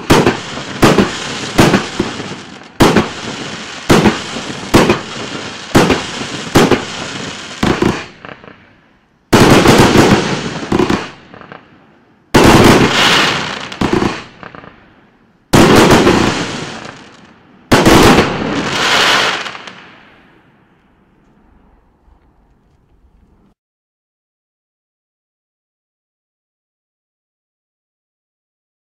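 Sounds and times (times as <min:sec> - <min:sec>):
firework volleys: 0:00.0 - 0:11.7, 0:12.3 - 0:23.6.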